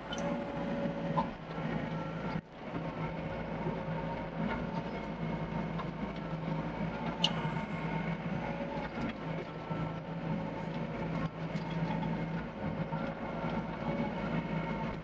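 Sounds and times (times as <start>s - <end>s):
excavator diesel engine running: 0.0s - 15.0s.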